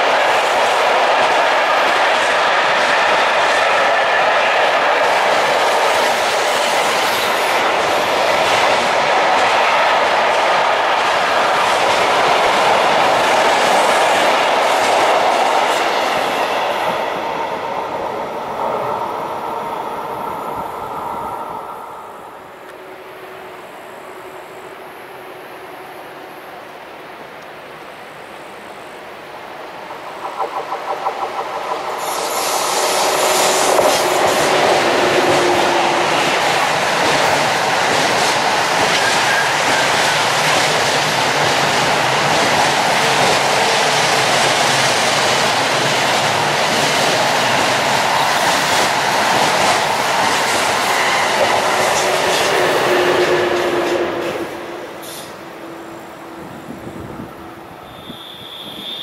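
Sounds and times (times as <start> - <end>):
train wheels clicking over rail joints: 29.8 - 55.4.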